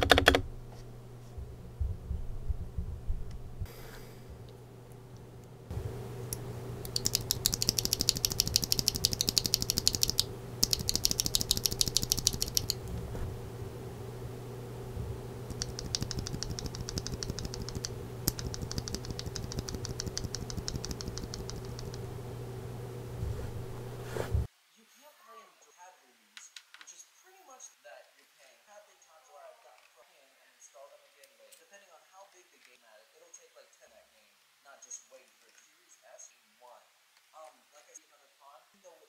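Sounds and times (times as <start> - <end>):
keyboard switch clicking rapidly: 0.0 - 0.5, 6.8 - 12.9, 15.5 - 22.0
steady low hum: 0.0 - 24.5.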